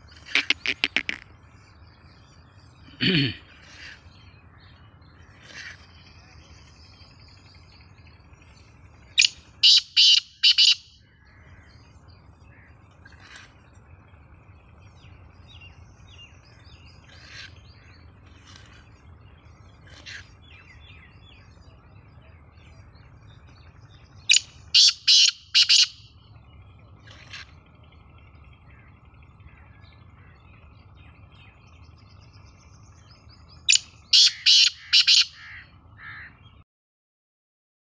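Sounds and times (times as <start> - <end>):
francolin calling harshly: 0.0 - 1.3, 9.1 - 11.9, 24.3 - 26.2, 33.6 - 36.3
single bird call notes: 9.2 - 10.8, 33.8 - 36.3.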